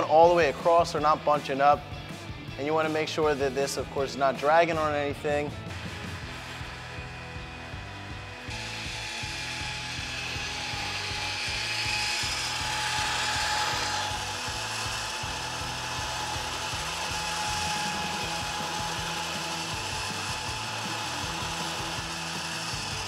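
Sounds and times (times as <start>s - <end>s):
electric winch motor whining: 6.2s - 23.0s.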